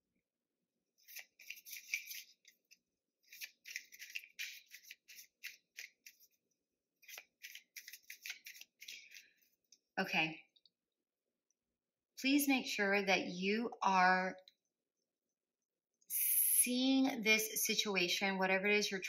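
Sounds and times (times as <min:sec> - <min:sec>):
cards being shuffled: 0:01.0 - 0:06.4, 0:07.0 - 0:09.5.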